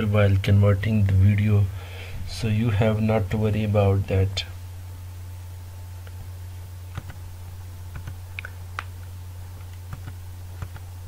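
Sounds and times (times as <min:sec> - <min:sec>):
low hum: 0:00.0 - 0:11.0
mouse and keyboard clicks: 0:09.6 - 0:10.9.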